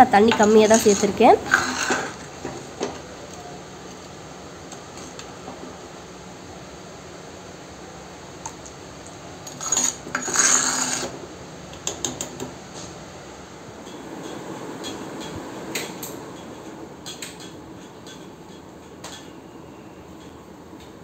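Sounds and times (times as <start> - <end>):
steel ladle scraping clay pot: 0.4 - 2.2, 9.5 - 11.1.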